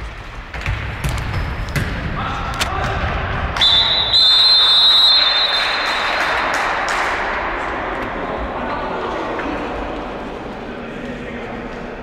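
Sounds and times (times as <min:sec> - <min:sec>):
voices echoing in hall: 0:01.8 - 0:12.0
referee's whistle blasts: 0:03.6 - 0:06.3.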